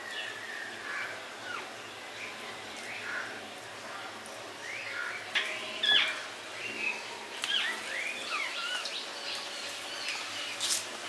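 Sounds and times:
small birds chirping: 0.0s - 10.9s
oil sizzling in frying: 7.2s - 11.0s.

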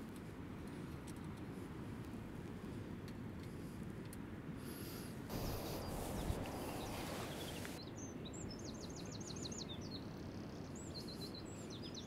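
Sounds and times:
wind on microphone: 5.3s - 7.8s
songbird chirps: 5.3s - 12.0s.

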